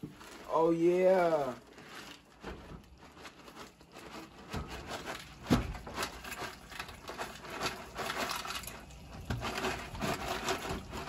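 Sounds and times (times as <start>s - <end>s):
dry pasta rattling into metal pot: 0.0s - 11.0s
plastic bag rustling: 0.0s - 11.0s.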